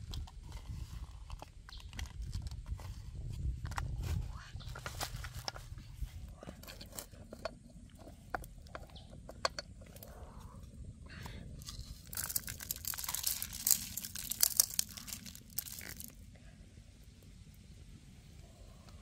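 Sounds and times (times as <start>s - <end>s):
salt grains pattering in a wok: 11.7s - 16.2s.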